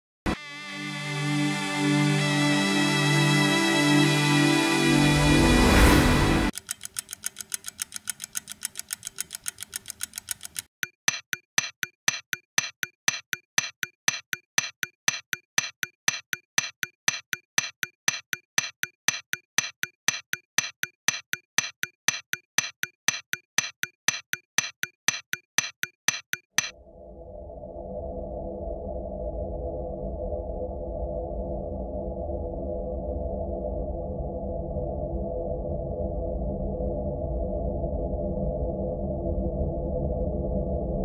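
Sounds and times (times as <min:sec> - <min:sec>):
background music: 0:00.3 - 0:06.6
clock-like ticking: 0:06.5 - 0:26.7.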